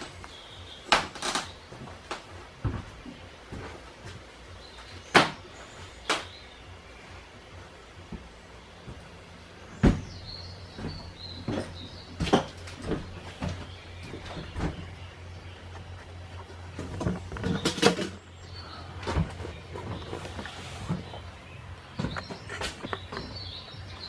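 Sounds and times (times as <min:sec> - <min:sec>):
steady low hum: 0:00.0 - 0:24.0
footsteps on bus floor: 0:01.2 - 0:04.8, 0:08.0 - 0:17.4, 0:19.0 - 0:24.0.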